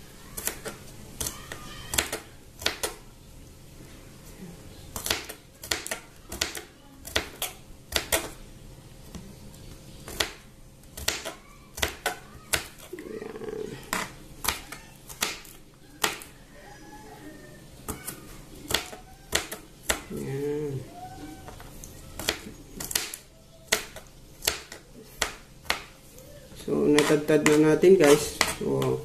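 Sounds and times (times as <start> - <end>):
knife chopping on cutting board: 27.0 - 29.0.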